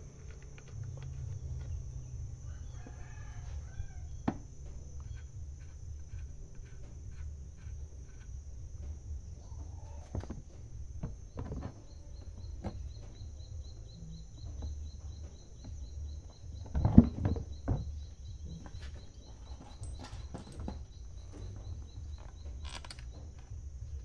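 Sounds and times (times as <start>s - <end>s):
steady low rumble: 4.1s - 9.8s.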